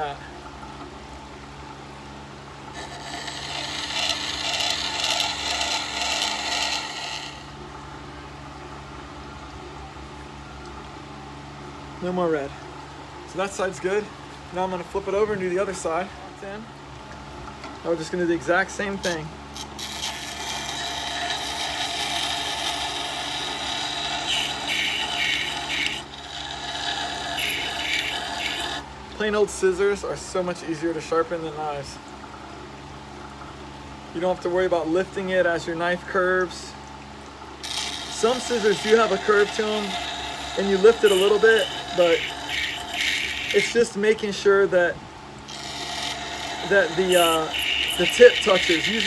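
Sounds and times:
blade scraping on grinding stone: 2.7 - 7.5, 19.1 - 28.8, 37.6 - 43.8, 45.5 - 49.0
grinder motor humming: 2.7 - 7.6, 18.9 - 28.9, 37.6 - 44.0, 45.4 - 49.0.

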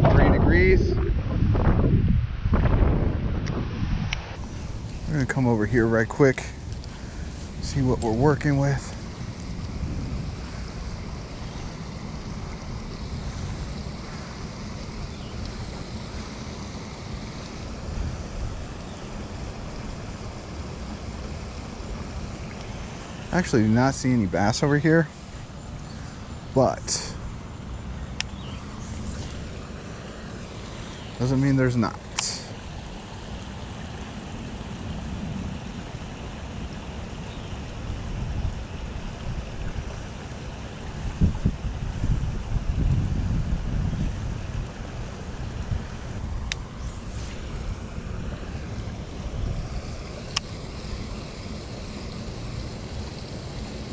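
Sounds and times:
wind blowing across microphone: 0.0 - 16.4, 17.2 - 20.6, 34.7 - 53.9
steady hiss: 4.1 - 53.9.

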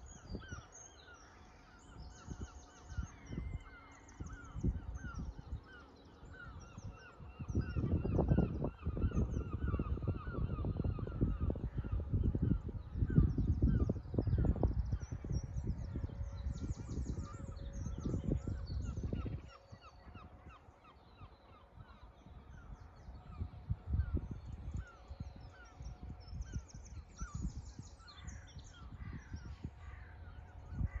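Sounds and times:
seabirds calling: 0.0 - 31.0
low microphone rumble: 7.5 - 20.4.

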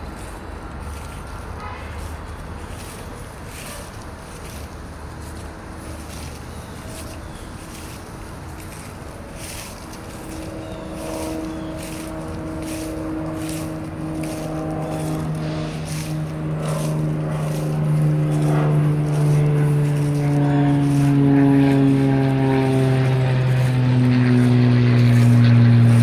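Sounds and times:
footsteps on dry leaves: 0.0 - 26.0
motor drone: 8.6 - 26.0.

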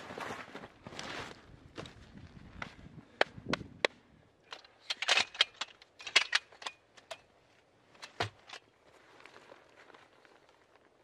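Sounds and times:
telescoping ladder metal clicks: 4.4 - 7.3.

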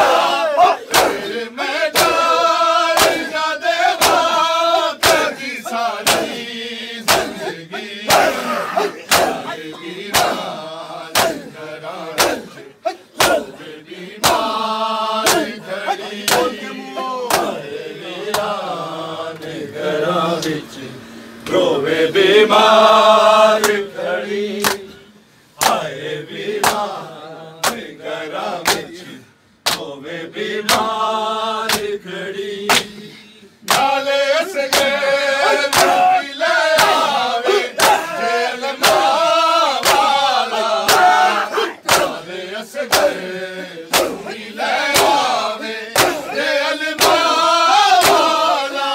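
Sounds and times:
men chanting a lament: 0.0 - 48.9
chest-beating slaps: 0.9 - 2.4, 3.0 - 3.4, 4.0 - 4.4, 5.0 - 6.4, 7.1 - 14.6, 15.2 - 17.6, 18.3 - 18.6, 24.6 - 24.9, 25.6 - 25.9, 26.6 - 26.9, 27.6 - 27.9, 28.6 - 28.9, 29.6 - 29.9, 30.6 - 31.0, 31.7 - 32.0, 32.7 - 33.0, 33.6 - 34.0, 34.6 - 36.1, 36.7 - 38.1, 38.8 - 39.1, 39.8 - 40.2, 40.8 - 42.2, 42.9 - 43.2, 43.9 - 45.3, 46.0 - 46.4, 47.0 - 47.3, 48.0 - 48.3.

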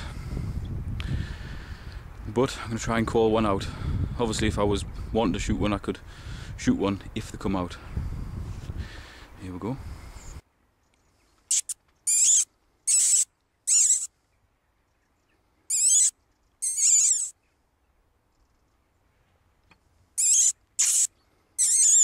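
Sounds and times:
high squeaks of rabbit call: 11.5 - 14.1, 15.7 - 17.4, 20.2 - 22.0.

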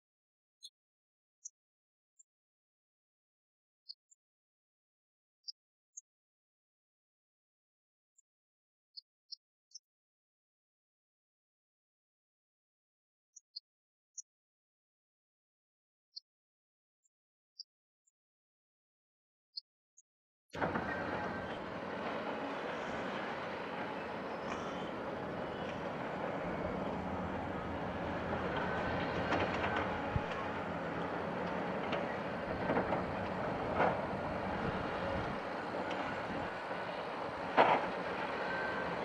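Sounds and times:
bulldozer clattering: 20.6 - 39.0.

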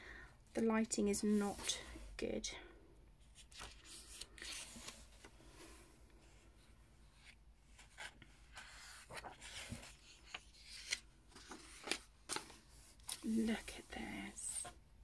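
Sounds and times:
page turning: 3.4 - 5.2, 7.8 - 13.6.

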